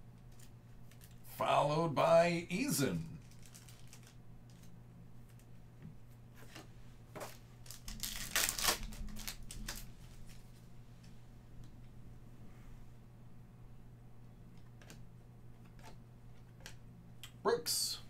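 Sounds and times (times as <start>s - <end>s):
foil pack tearing and crinkling: 3.2s - 4.2s, 7.3s - 10.4s
cards clicking and rustling: 3.2s - 4.7s, 6.4s - 10.4s.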